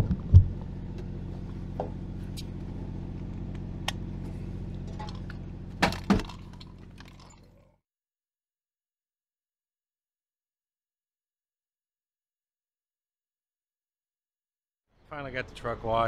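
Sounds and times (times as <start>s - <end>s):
diesel engine idling: 0.5s - 7.3s.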